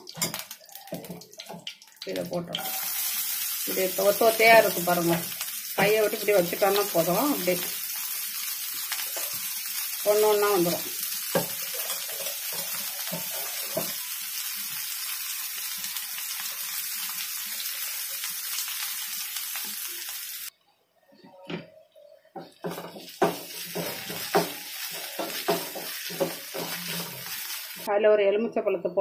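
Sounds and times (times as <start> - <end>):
onions sizzling in oil: 0.0 - 20.5, 22.6 - 27.9
spatula scraping pan: 22.7 - 27.7.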